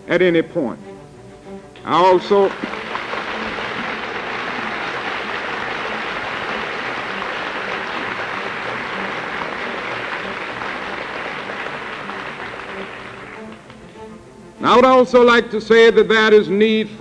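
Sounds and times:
large audience applauding: 2.1 - 14.1.

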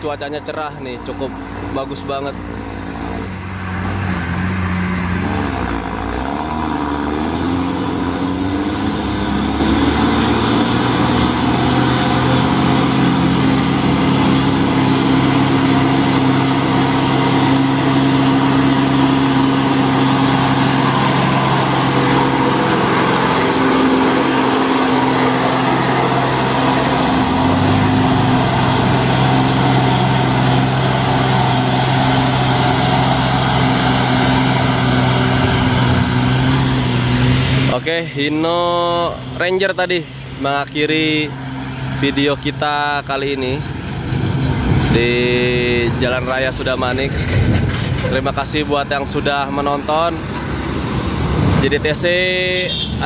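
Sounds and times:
diesel truck engine labouring: 0.0 - 53.0.

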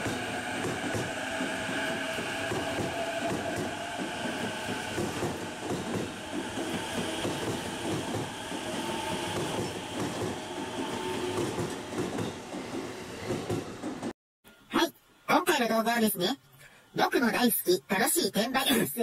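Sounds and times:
train wheels clattering on rails: 0.0 - 14.1.

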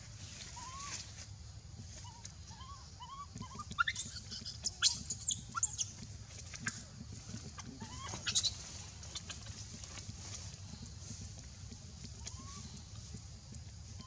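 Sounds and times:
low rumbling background noise: 0.0 - 14.0
baby monkey squealing: 2.0 - 5.9, 7.8 - 9.4.

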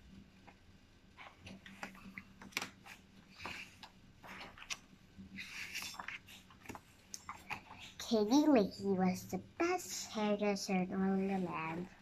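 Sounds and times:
paper pages swishing: 1.2 - 7.7.

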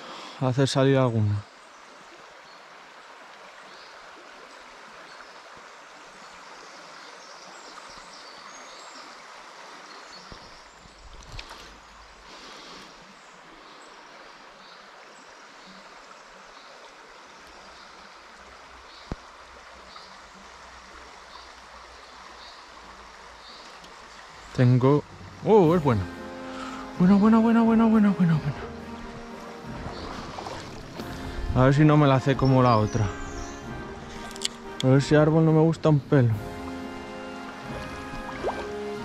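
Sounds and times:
river water flowing over stones: 0.0 - 39.0.

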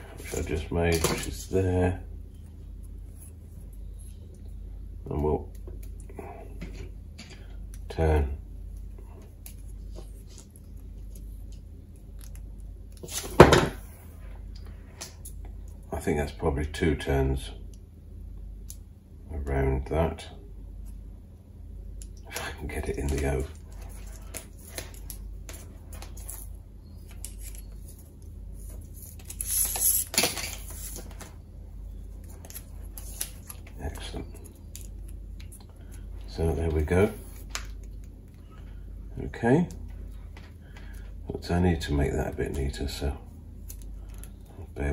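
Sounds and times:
wire rustling and scraping: 23.0 - 31.5.

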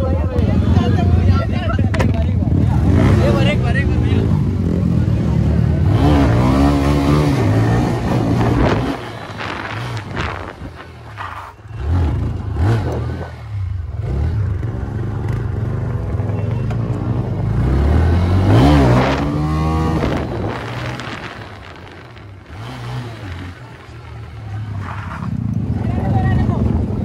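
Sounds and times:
motorcycle engine revving: 0.0 - 27.0
road noise: 0.0 - 27.0
wind noise: 6.0 - 11.6, 18.1 - 27.0.

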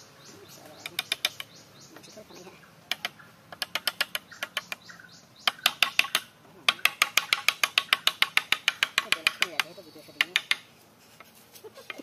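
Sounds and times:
hammer tapping nail into wood: 5.5 - 10.6.

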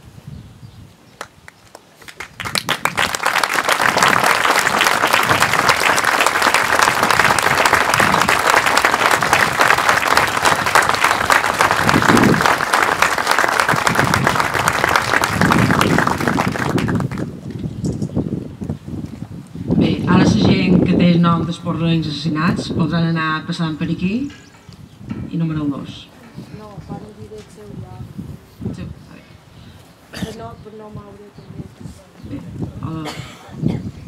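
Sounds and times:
audience applauding: 1.7 - 17.4.

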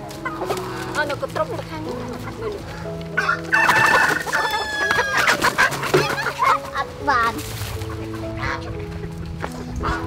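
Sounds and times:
chickens clucking: 0.0 - 10.0
rooster crowing: 3.2 - 5.4.

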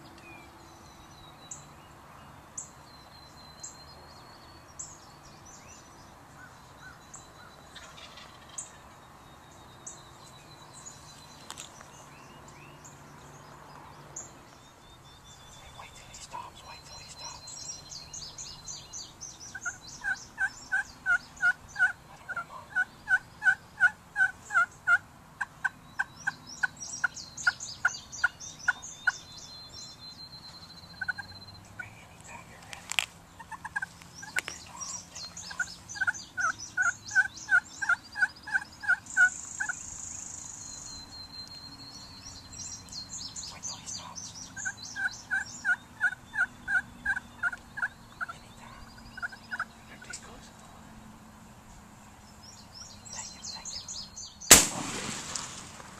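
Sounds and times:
songbirds chirping faintly: 0.0 - 55.9
wild turkey yelping: 7.8 - 8.6, 19.5 - 26.7, 31.0 - 31.3, 33.4 - 39.8, 44.6 - 49.7.

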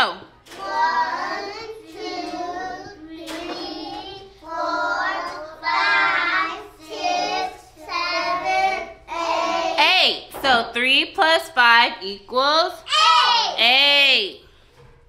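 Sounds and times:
children counting in unison: 12.8 - 13.6.

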